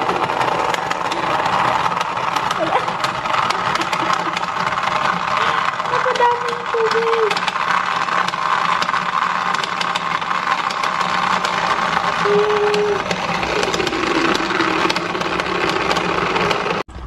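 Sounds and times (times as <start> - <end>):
small motor whirring and rattling: 0.0 - 16.9.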